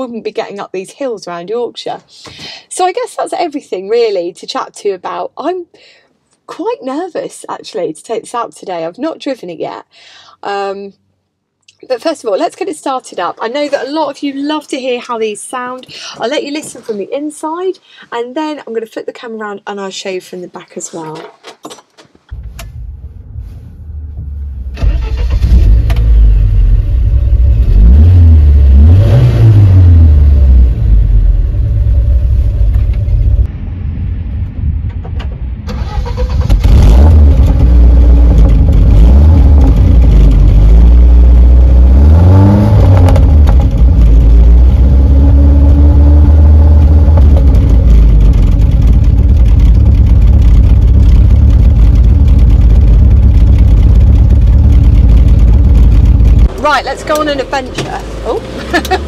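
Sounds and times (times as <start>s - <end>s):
van engine starting and revving: 22.3s - 33.5s, 35.7s - 59.0s.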